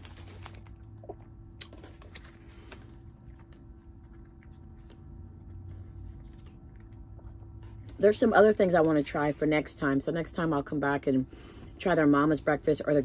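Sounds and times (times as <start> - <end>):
person chewing: 0.0 - 8.0
steady low hum: 0.0 - 13.0.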